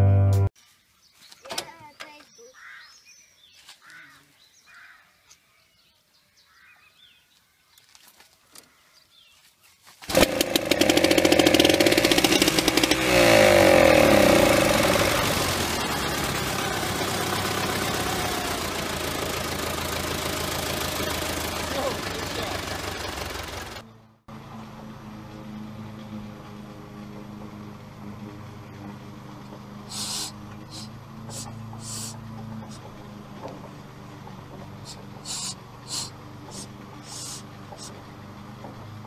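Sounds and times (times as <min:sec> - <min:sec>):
small two-stroke engine running: 0:10.0 - 0:39.0.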